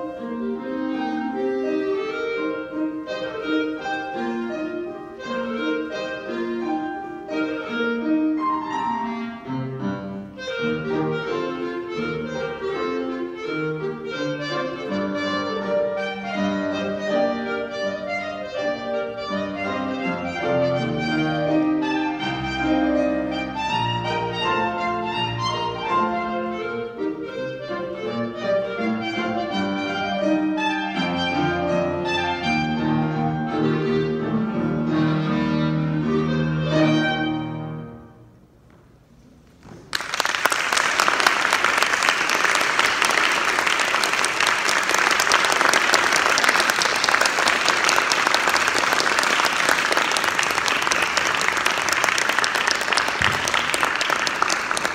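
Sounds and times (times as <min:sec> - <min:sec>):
clarinet: 0:00.0 - 0:38.3
piano: 0:00.0 - 0:54.9
audience applause: 0:39.8 - 0:54.9.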